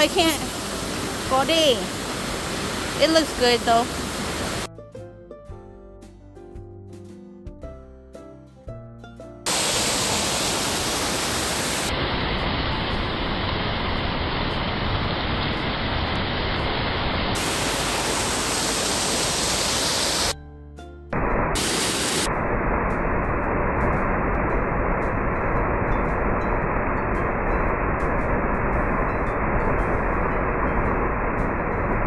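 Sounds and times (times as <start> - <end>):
waterfall rushing: 0.0 - 4.7, 9.5 - 20.4, 21.2 - 32.0
background music: 4.7 - 9.5.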